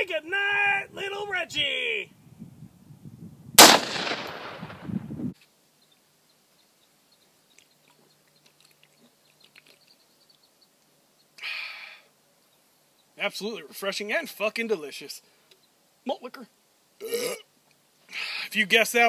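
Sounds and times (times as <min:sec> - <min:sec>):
gunshot with echo: 0:03.6 - 0:04.9.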